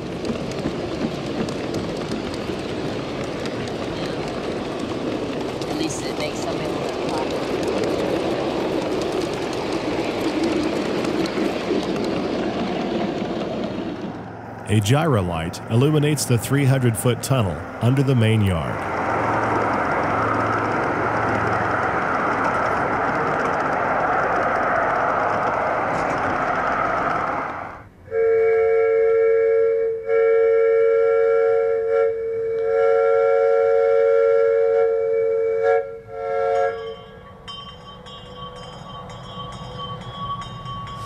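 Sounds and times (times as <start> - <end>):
steam chime whistle blasts: 28.1 - 37.5.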